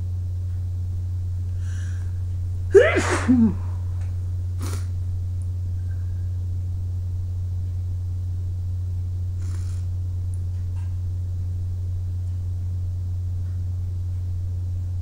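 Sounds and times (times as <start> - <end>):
steady low hum: 0.0 - 15.0
faint breath: 1.5 - 2.2, 9.4 - 9.9.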